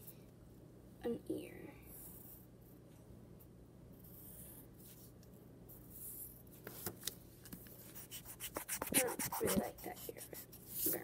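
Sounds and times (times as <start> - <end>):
pencil scratching on paper: 7.9 - 11.0.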